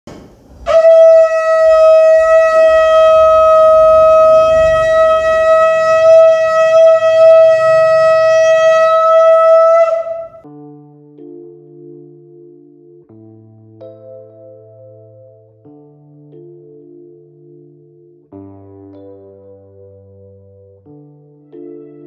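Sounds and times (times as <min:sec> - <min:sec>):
conch shell blast: 0:00.1 - 0:10.4
soft keyboard music: 0:00.4 - 0:22.0.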